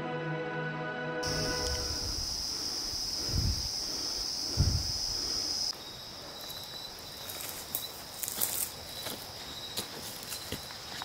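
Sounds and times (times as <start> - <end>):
thin insect note: 1.2 - 5.7
insects droning: 1.2 - 11.0
footsteps crunching on dry leaves: 3.0 - 11.0.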